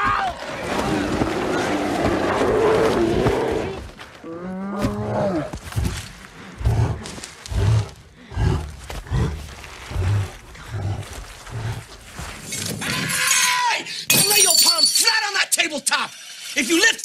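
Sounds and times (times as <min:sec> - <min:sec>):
bear breathing heavily: 0:05.4 - 0:12.5.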